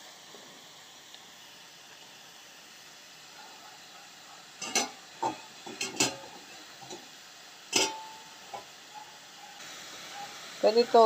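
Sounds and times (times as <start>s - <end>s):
chicken sizzling: 0.0s - 11.0s
utensil scraping frying pan: 4.6s - 7.1s, 7.7s - 8.8s.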